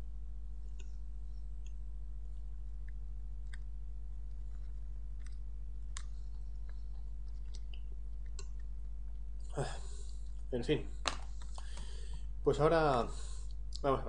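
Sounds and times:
low electrical hum: 0.0 - 14.0
mouth clicks and lip smacks chewing: 1.6 - 9.4.

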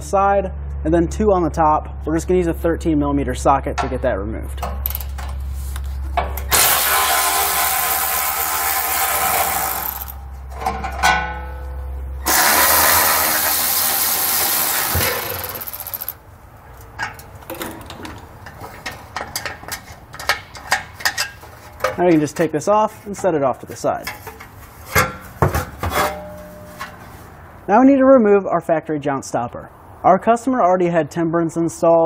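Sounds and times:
metal clicks and rattles: 4.6 - 5.4, 15.0 - 22.3
electric ratchet running: 6.4 - 10.2, 12.2 - 16.2.

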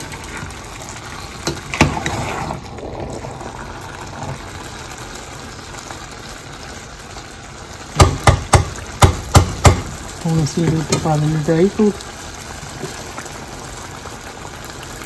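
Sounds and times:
metal spoon stirring in pan: 0.0 - 2.7
steady hiss: 7.8 - 14.9
spoon knocking against pan: 8.0 - 10.0.

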